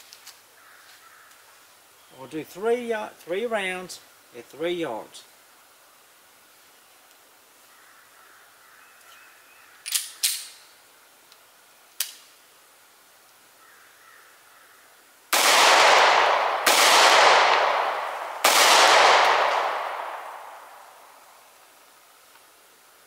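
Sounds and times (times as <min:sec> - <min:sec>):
pistol shots: 0:15.4 - 0:21.0.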